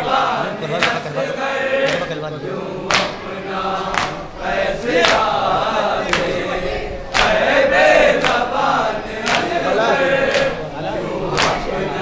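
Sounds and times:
men singing in unison: 0.0 - 12.0
chest-beating slaps: 0.8 - 1.2, 1.8 - 2.2, 2.9 - 3.3, 3.9 - 4.2, 4.9 - 5.4, 6.0 - 6.4, 7.1 - 7.4, 8.2 - 8.4, 9.2 - 10.7, 11.3 - 11.9.

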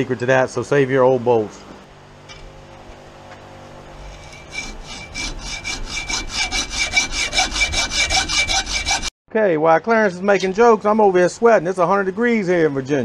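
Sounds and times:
hacksaw rasping through steel: 4.0 - 9.1
high ringing saw blade: 4.0 - 9.1.

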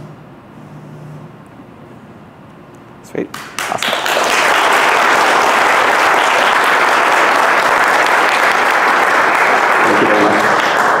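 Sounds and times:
audience applauding: 3.3 - 11.0.

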